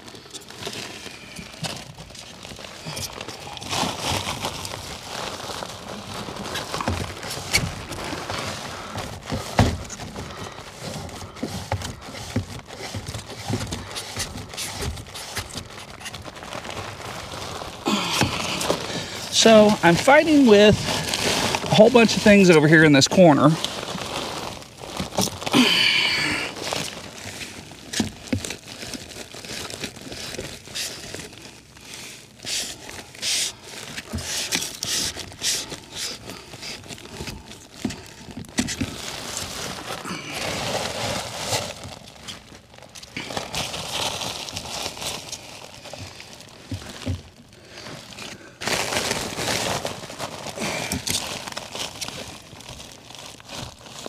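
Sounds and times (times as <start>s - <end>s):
rustling and crinkling: 0.0s - 54.0s.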